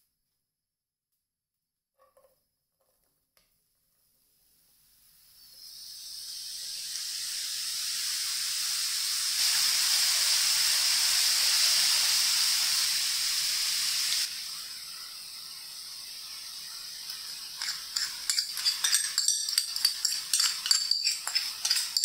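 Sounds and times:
apples sizzling in frying pan: 6.4s - 22.0s.

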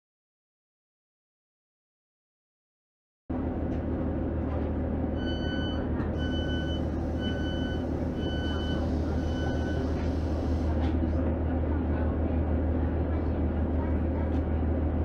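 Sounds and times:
diesel engine idling: 3.3s - 15.0s
door-warning tone beeping: 5.2s - 10.0s.

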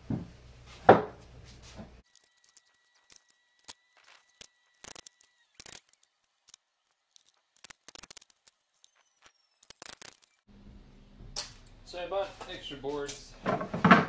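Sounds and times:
boards and tools knocking: 0.0s - 1.2s, 13.4s - 14.0s.

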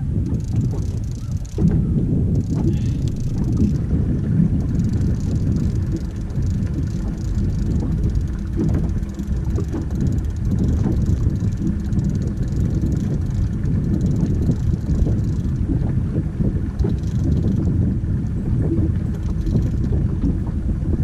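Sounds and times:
wind rumble on microphone: 0.0s - 21.0s
faint clicks: 0.2s - 1.8s, 2.4s - 3.9s, 4.6s - 15.8s, 16.8s - 18.4s, 19.1s - 20.0s.

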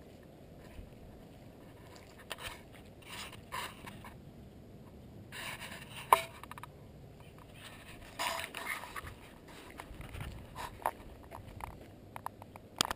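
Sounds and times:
scrapes and rustles: 0.0s - 4.2s, 4.8s - 12.9s
low background hiss: 0.0s - 12.9s.

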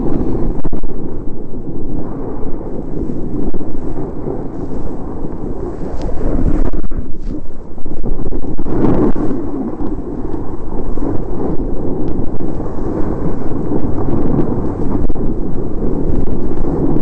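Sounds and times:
wind buffeting microphone: 0.0s - 17.0s
skis scraping snow: 2.9s - 7.7s.

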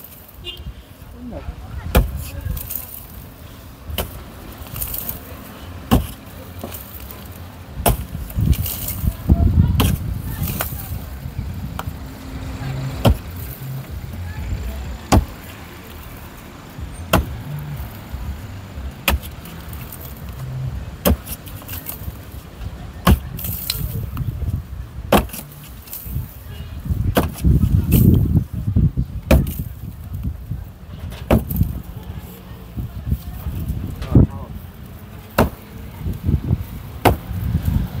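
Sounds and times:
sledgehammer striking concrete wall: 5.9s - 6.2s, 15.1s - 15.3s, 17.1s - 17.4s, 19.0s - 19.3s, 35.4s - 35.6s, 37.0s - 37.3s.

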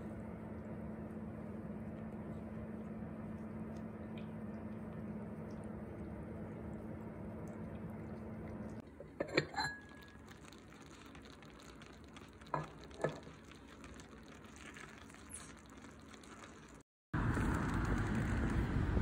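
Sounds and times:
low steady hum: 0.0s - 19.0s
faint sizzling: 7.3s - 16.8s
metal spoon clinking on pot: 9.1s - 10.2s.

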